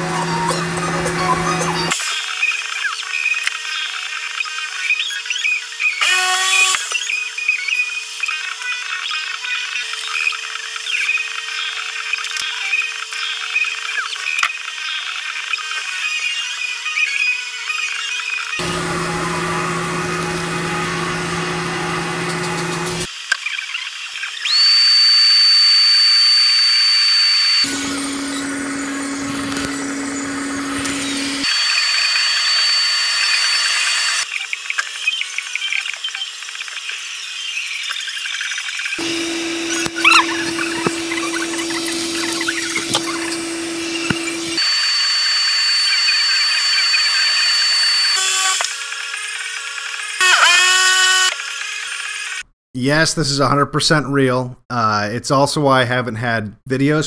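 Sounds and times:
high-pitched motor whine: 0.0s - 2.5s, 18.6s - 23.1s, 24.3s - 52.4s
low motor hum: 18.6s - 23.1s, 24.6s - 31.5s, 39.0s - 44.6s.

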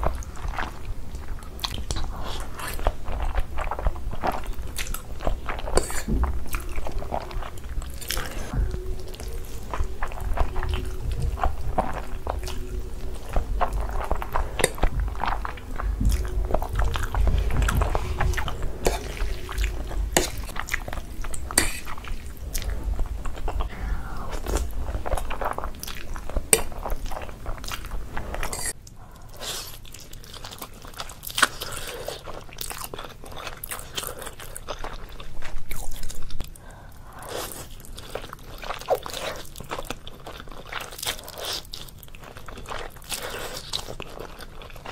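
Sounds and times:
low rumble: 0.0s - 28.8s
slurping and chewing noodles: 0.0s - 44.9s.

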